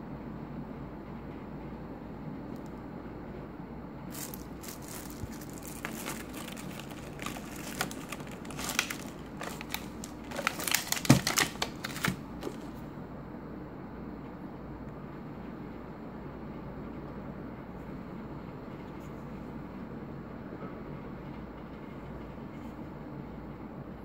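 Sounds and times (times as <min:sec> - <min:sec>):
plastic wrapping crinkling: 0:04.1 - 0:12.8.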